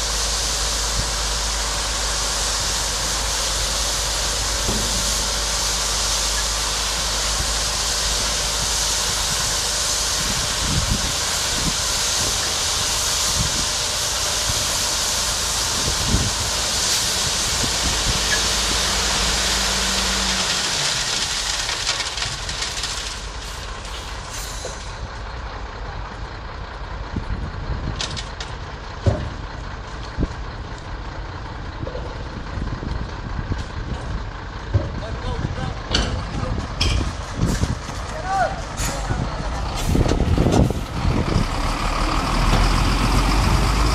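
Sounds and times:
steady rushing hiss: 0:00.0 - 0:22.2
truck engine running hoist: 0:00.0 - 0:43.9.

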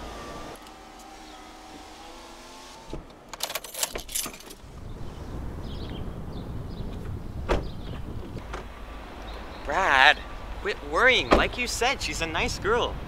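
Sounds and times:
low rush of open air: 0:02.7 - 0:13.0
car door clicks and rattles: 0:02.9 - 0:04.6.

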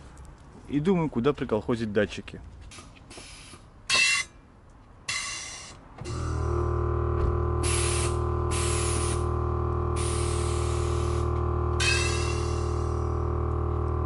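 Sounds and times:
air hissing from valves: 0:02.7 - 0:04.3, 0:05.1 - 0:06.6, 0:07.5 - 0:13.7
air compressor humming: 0:05.1 - 0:14.0.

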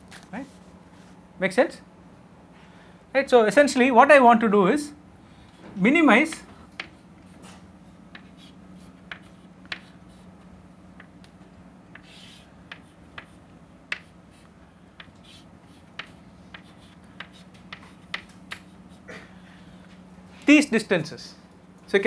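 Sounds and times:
steady low hum: 0:00.0 - 0:22.0
chalk tapping on blackboard: 0:08.1 - 0:10.2, 0:11.9 - 0:18.7
chalk scraping on blackboard: 0:12.0 - 0:14.5.

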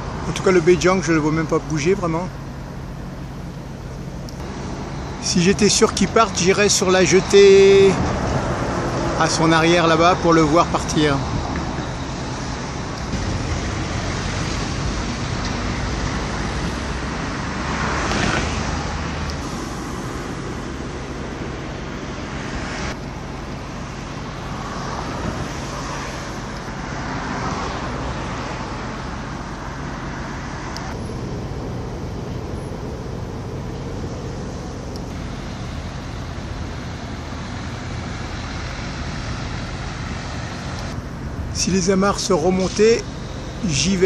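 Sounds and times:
road traffic hum: 0:00.0 - 0:44.0
vehicle passing: 0:04.4 - 0:35.2.

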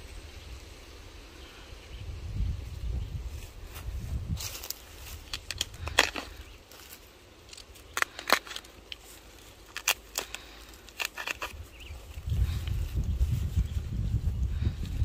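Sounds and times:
vines snapping and crackling: 0:04.3 - 0:13.6.

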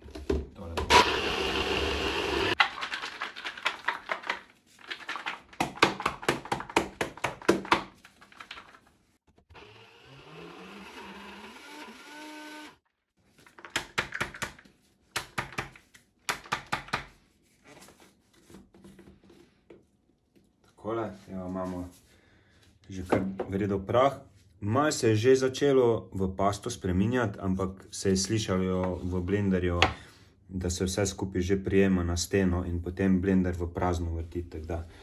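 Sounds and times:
blender grinding nuts: 0:00.8 - 0:03.4, 0:09.5 - 0:12.8.

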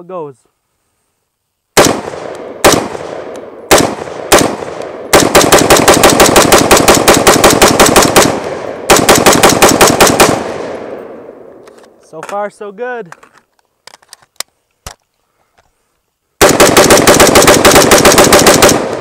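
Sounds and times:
rifle gunshots: 0:01.8 - 0:11.3, 0:16.4 - 0:19.0.

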